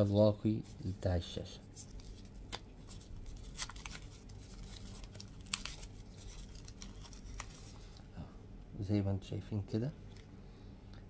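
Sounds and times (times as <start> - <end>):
faint low hum: 0.0 - 11.0
plastic film crackling: 1.8 - 8.0.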